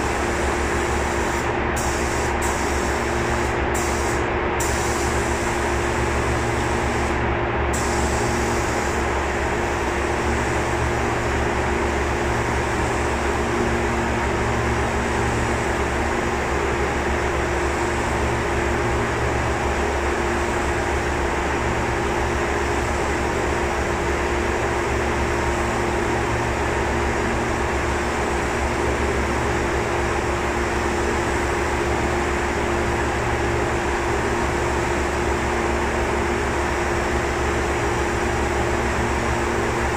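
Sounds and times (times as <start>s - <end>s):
spray gun hissing: 0.0s - 5.4s, 6.3s - 9.0s.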